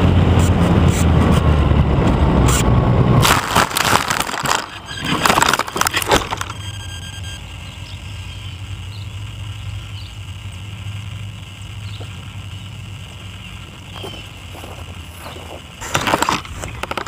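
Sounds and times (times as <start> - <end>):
steady low hum: 0.0 - 17.0
faint high whine: 3.4 - 17.0.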